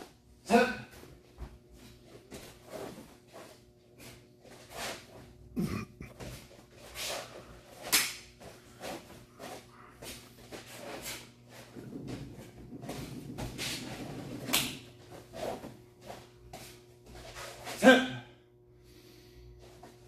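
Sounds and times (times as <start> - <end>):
uniform swishing and snapping: 7.8 - 8.3.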